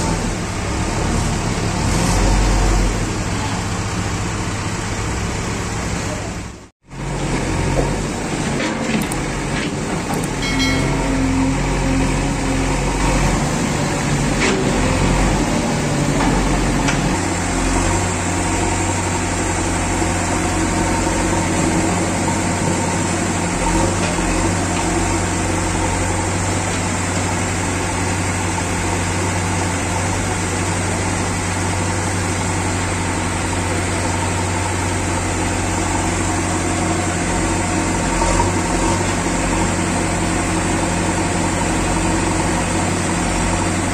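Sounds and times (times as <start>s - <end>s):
diesel engine running: 0.0s - 43.9s
backhoe digging sand: 7.1s - 28.6s.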